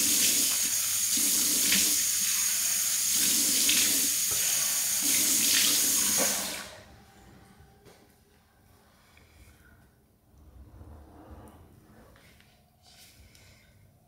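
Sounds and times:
sink tap running: 0.0 - 6.6.

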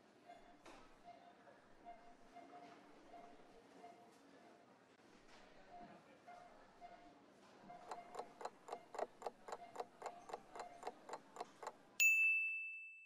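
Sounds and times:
clock ticking quickly: 7.8 - 11.9
bell ding: 12.0 - 13.0.

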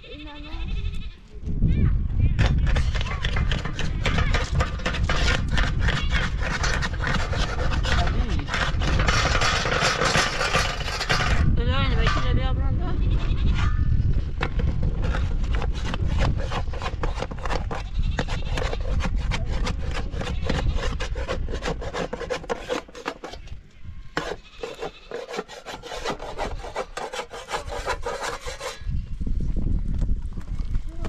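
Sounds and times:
rhythmic wood rubbing strokes: 14.9 - 23.4, 24.2 - 28.8.

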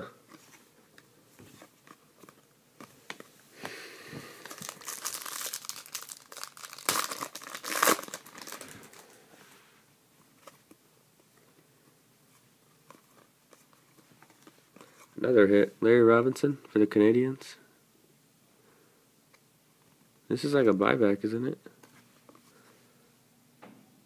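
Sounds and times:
wrapper crinkling and tearing: 4.4 - 9.2.

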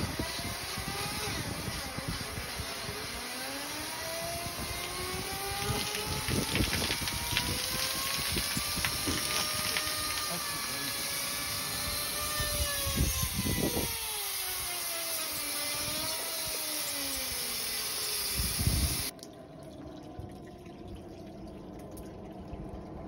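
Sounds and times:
air hissing: 7.1 - 19.1.

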